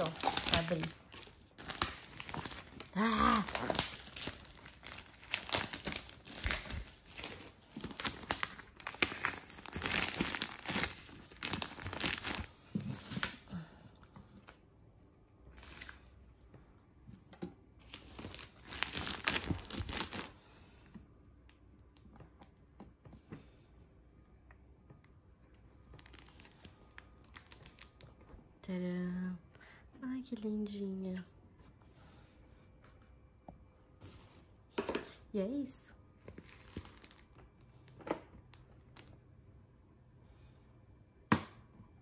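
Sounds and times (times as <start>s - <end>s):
plastic wrapping crinkling: 0.0s - 13.5s, 17.8s - 20.4s, 25.5s - 28.5s, 36.2s - 39.2s.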